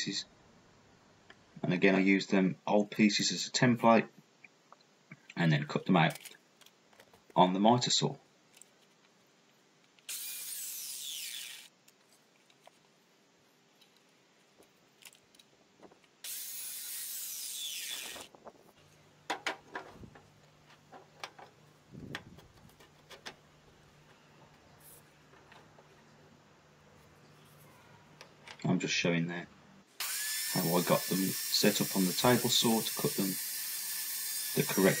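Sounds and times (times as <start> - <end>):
mitre saw cutting wood: 10.1 - 11.7, 16.2 - 18.3, 30.0 - 35.0.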